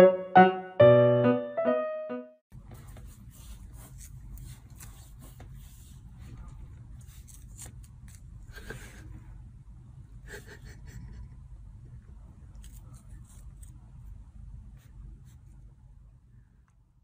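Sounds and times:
low room hum: 2.5 - 17.0.

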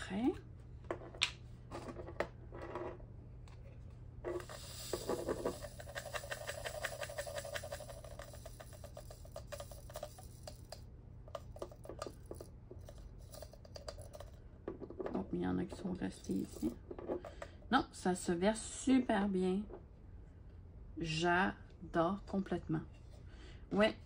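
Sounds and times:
tiny plastic beads pouring rattle: 4.4 - 14.3, 16.2 - 16.8.

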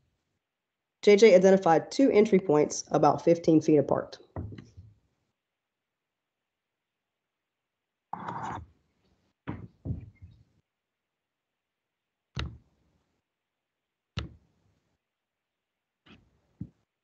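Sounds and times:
sudden knocks and taps: 4.4 - 4.9, 9.4 - 10.4, 14.2 - 14.4.

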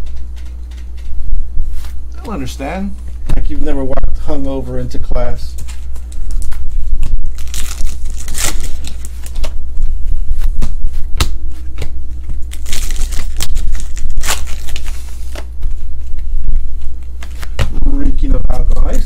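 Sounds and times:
steady low hum: 0.0 - 19.0
foil wrappers crinkling and tearing: 5.6 - 9.5, 12.3 - 15.4
cards being handled: 10.3 - 17.8.

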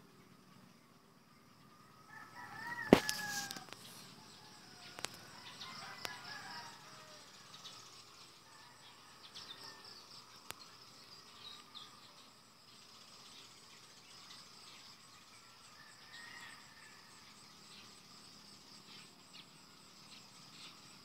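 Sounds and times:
rooster crowing: 2.0 - 7.4, 15.7 - 17.2.

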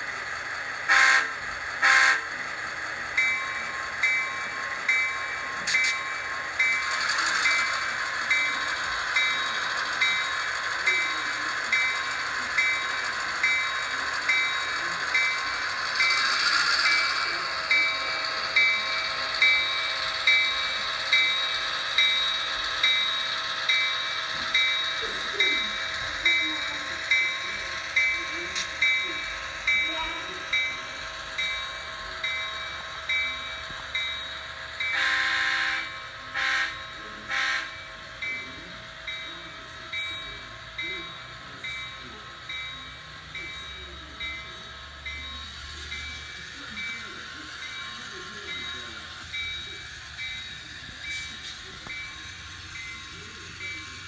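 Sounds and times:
locomotive bell ringing: 0.0 - 54.0
locomotive horn blast: 0.9 - 2.2, 35.0 - 37.7.

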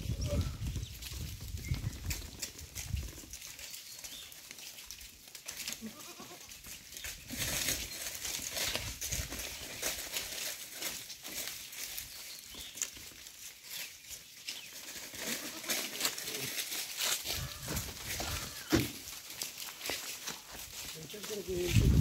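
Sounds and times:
hooves clicking and rustling: 0.0 - 22.0
goats bleating: 5.7 - 6.6, 15.2 - 16.6, 17.3 - 18.8.

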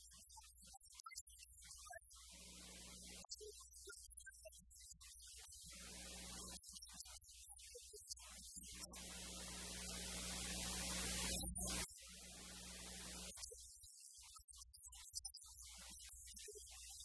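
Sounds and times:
electrical mains hum with hiss: 2.3 - 3.2, 5.7 - 6.6, 8.8 - 13.3.

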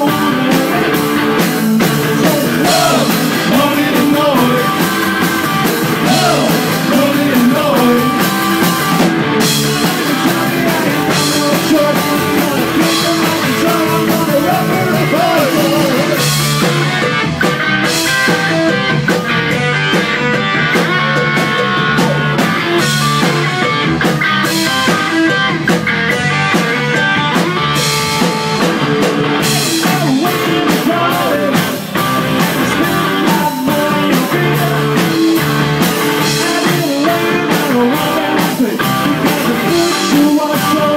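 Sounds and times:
man singing: 0.0 - 8.9, 9.6 - 16.4, 20.6 - 22.4, 29.4 - 40.9
drum kit beat: 0.0 - 40.9
electric guitars: 0.0 - 40.9.

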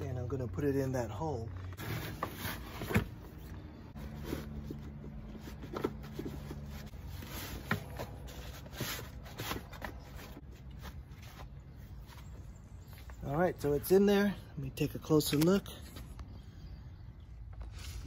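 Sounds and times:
vinyl rustling and rubbing: 1.5 - 12.6.

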